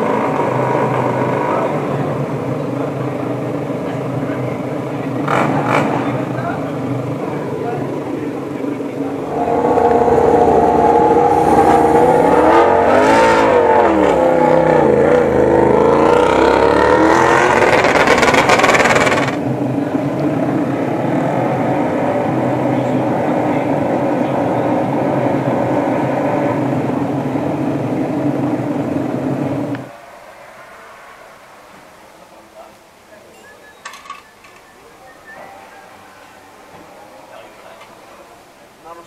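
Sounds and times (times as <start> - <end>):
motorcycle engine revving: 5.2 - 6.4, 7.6 - 19.9.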